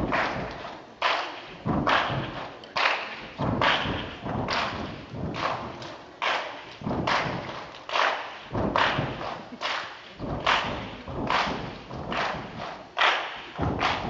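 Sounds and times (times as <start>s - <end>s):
stomps and hand claps: 0.0s - 14.0s.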